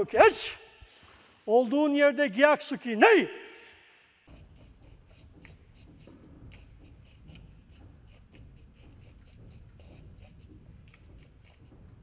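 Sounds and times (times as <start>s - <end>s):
pen scratching on paper: 4.3s - 11.7s.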